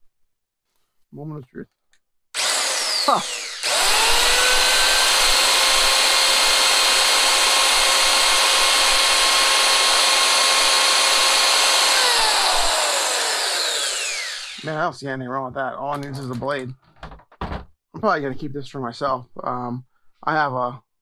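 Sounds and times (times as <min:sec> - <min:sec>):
circular saw motor whine: 0:02.4 - 0:14.8.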